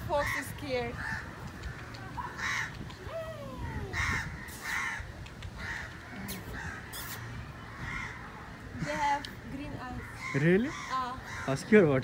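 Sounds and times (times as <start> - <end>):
crows cawing: 0.1 - 2.8, 4.0 - 7.0, 7.6 - 9.2, 9.8 - 12.0.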